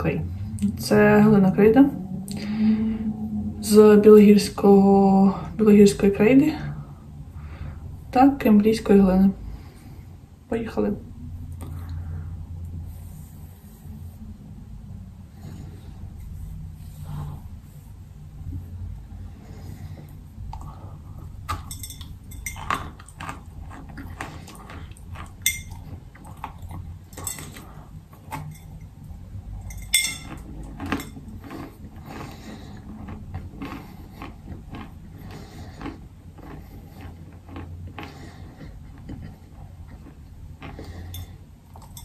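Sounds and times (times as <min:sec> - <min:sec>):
low steady hum: 0:00.0 - 0:42.0
crunching and chewing chalk: 0:18.5 - 0:42.0.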